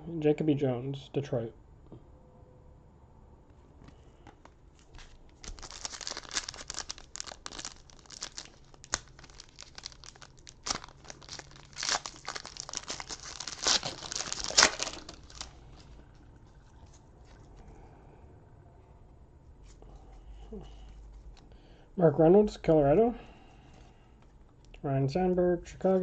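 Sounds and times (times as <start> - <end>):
card pack wrapper crinkling and tearing: 4.9 - 16.0.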